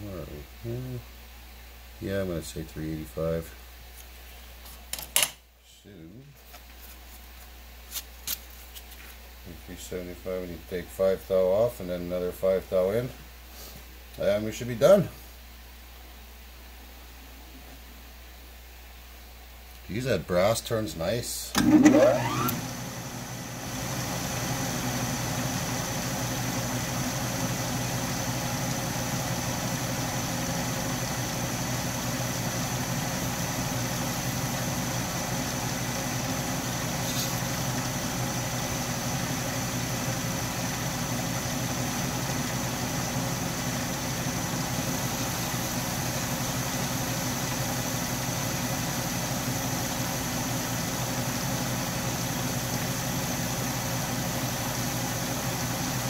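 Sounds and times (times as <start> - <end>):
metal lathe running: 21.6 - 22.6.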